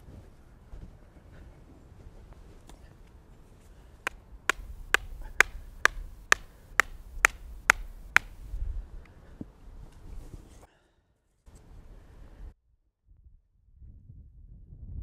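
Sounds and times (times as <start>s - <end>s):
wooden stake being hammered: 4.1s - 8.6s.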